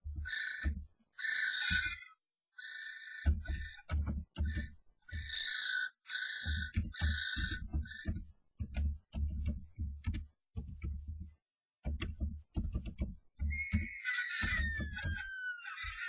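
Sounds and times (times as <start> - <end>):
birds scuffling and wing-beating: 0.0 - 2.1, 2.8 - 10.2, 12.9 - 16.0
harsh bird screeching: 0.2 - 8.1, 13.5 - 16.0.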